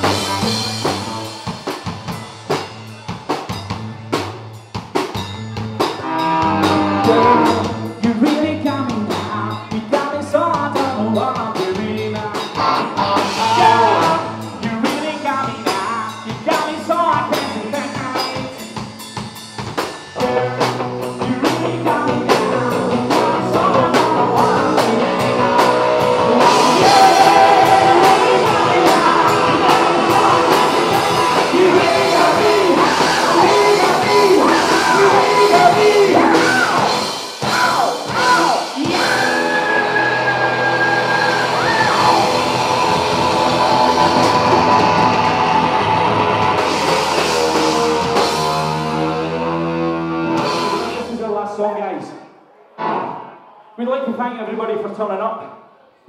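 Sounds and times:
electric guitar: 0.0s - 2.6s, 5.6s - 19.2s, 19.8s - 51.1s
bass guitar: 0.0s - 51.4s
drum kit: 0.0s - 51.4s
person singing: 6.0s - 18.7s, 20.2s - 46.0s.

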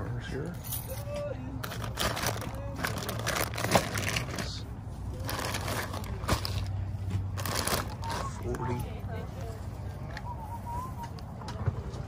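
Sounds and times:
plastic bags crinkling: 1.6s - 8.5s.

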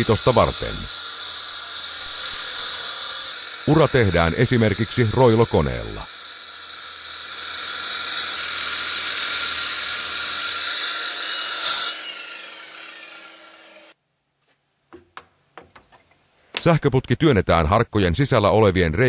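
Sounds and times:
wall chaser grinding masonry: 0.0s - 14.0s
hammer knocking: 14.9s - 16.0s.

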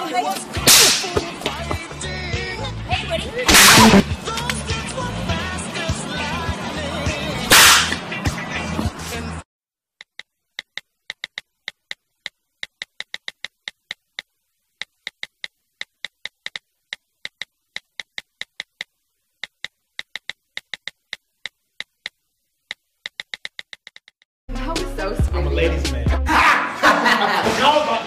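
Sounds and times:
phone keyboard clicks: 10.0s - 14.2s, 14.8s - 21.2s, 21.8s - 24.2s.

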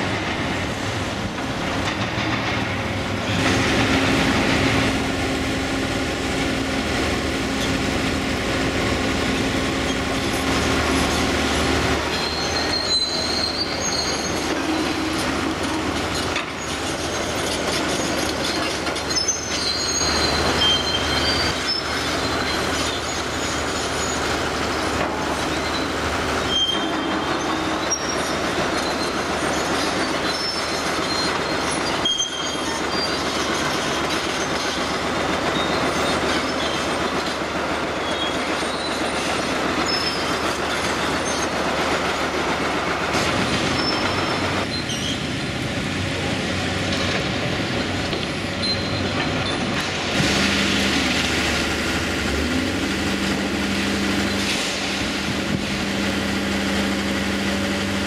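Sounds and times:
excavator engine: 0.0s - 58.0s
high metallic squeals: 12.0s - 24.4s, 25.3s - 34.9s, 48.6s - 49.6s.

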